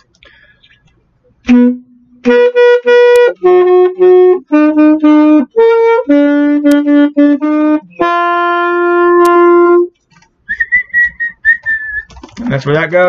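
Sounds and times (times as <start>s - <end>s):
alto saxophone playing: 1.4s - 10.0s.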